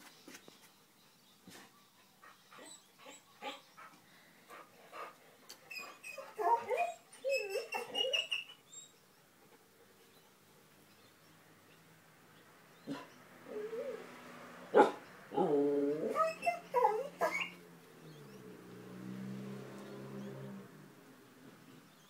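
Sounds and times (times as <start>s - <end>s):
dogs whining vocalisations: 5.7s - 8.9s, 15.4s - 17.6s.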